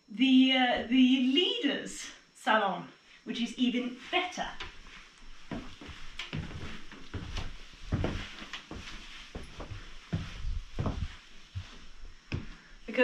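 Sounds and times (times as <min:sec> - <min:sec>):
footsteps walking: 0:04.0 - 0:13.0.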